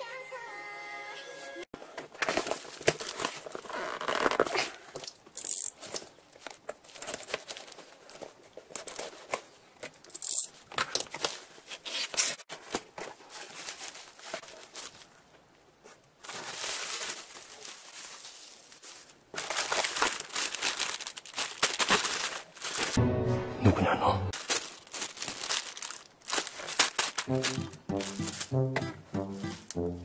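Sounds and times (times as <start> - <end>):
packing tape ripping: 2.2 - 6.0, 19.4 - 23.0, 24.4 - 28.6
bubble wrap crinkling: 2.2 - 9.4, 10.1 - 23.0, 24.4 - 28.6.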